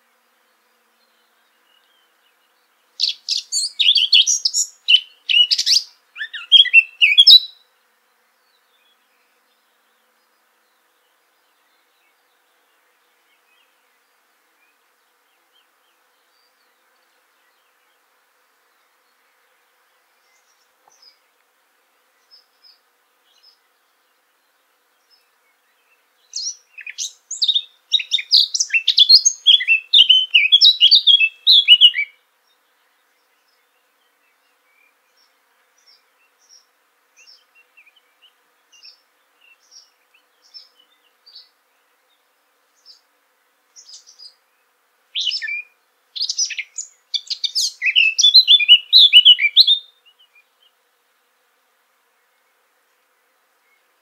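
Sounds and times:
faint scattered bird notes: 0:00.0 - 0:50.9, 0:52.0 - 0:54.0
bird warbling song: 0:01.0 - 0:07.6, 0:22.2 - 0:41.5, 0:43.8 - 0:50.8.

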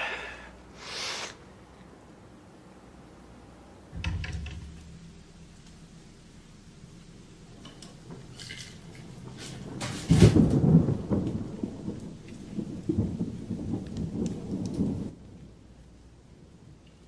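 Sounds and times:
thunder rumbling and cracking: 0:03.9 - 0:16.8.

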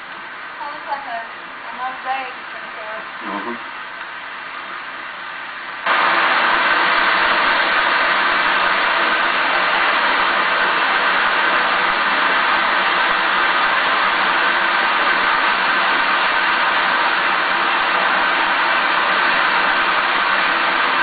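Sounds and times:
water cascading over rocks: 0:05.9 - 0:21.0.

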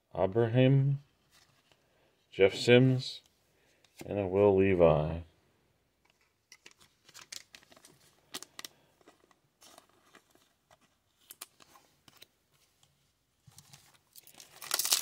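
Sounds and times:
trading cards shuffling: 0:06.1 - 0:12.7
wrapper crinkling: 0:06.6 - 0:10.5, 0:13.6 - 0:15.0.

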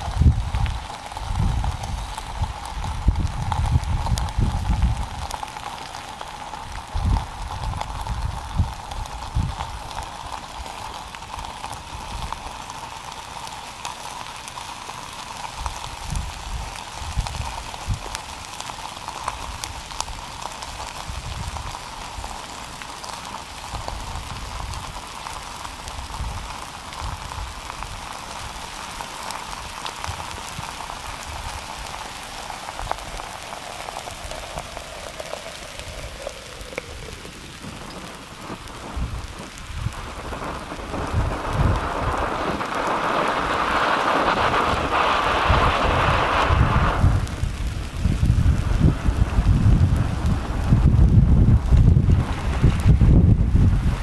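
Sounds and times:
wind gusts on microphone: 0:00.0 - 0:05.5, 0:06.6 - 0:12.4, 0:15.6 - 0:18.5, 0:20.9 - 0:22.3, 0:32.6 - 0:54.0
lava crackling and ticking: 0:00.0 - 0:54.0.

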